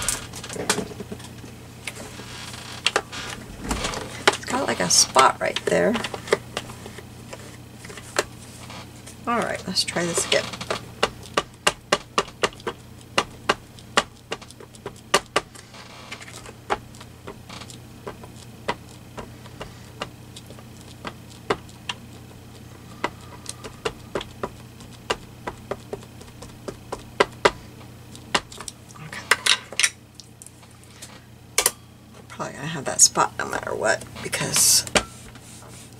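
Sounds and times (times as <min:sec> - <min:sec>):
ink pad tapping on plastic: 0:10.6 - 0:15.6, 0:18.0 - 0:27.6.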